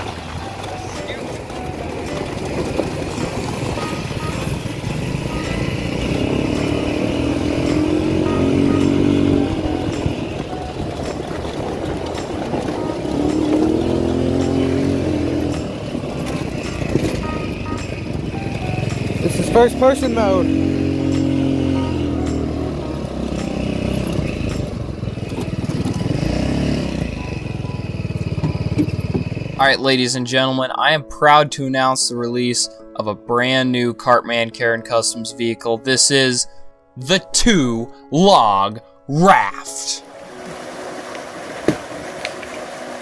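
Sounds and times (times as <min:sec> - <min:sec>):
bike rattling on gravel: 0:00.0 - 0:05.3, 0:09.6 - 0:20.4
minibike engine revving: 0:00.0 - 0:29.8, 0:40.1 - 0:43.0.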